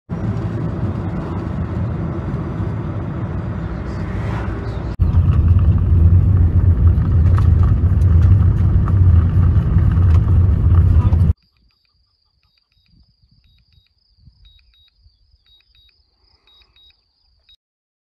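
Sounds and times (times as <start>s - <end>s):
car road noise rumble: 0.1s - 11.4s
knocks and rattles: 5.0s - 11.4s.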